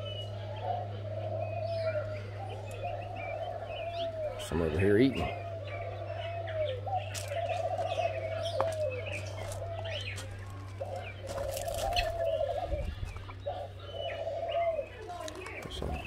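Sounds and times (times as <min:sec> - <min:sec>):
low warbling bird call: 0:00.0 - 0:16.0
steady low hum: 0:00.0 - 0:16.0.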